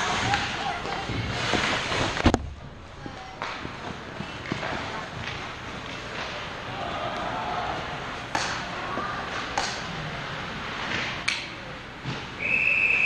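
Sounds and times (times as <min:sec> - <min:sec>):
high whistle tone: 0:12.4 - 0:13.0.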